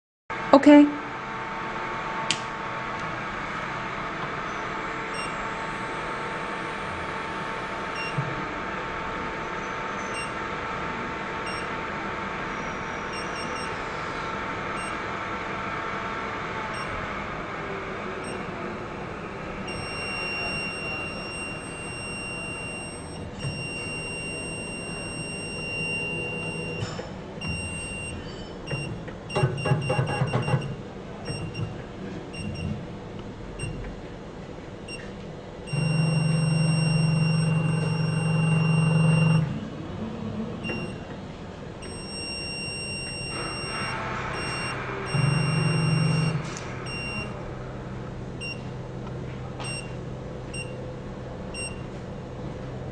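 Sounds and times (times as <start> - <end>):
stepper motors humming: 1.3 - 51.8
high-pitched whine: 41.8 - 48.2.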